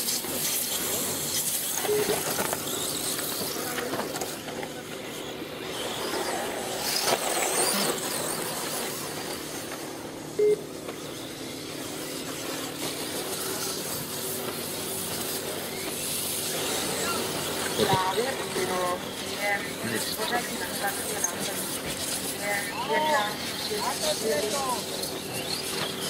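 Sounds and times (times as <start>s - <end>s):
rc car engines revving: 0.0s - 26.0s
loud beep: 1.8s - 2.2s, 10.3s - 10.7s.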